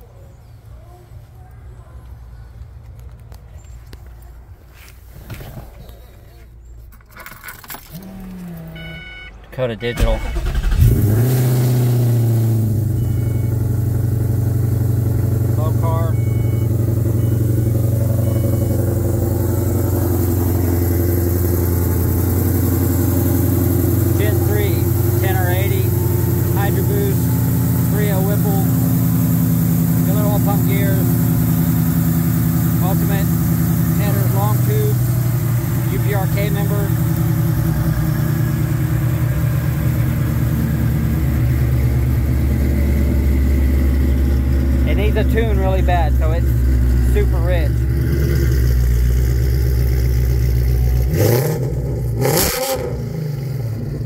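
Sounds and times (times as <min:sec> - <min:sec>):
car engine idling: 0:00.6 - 0:54.0.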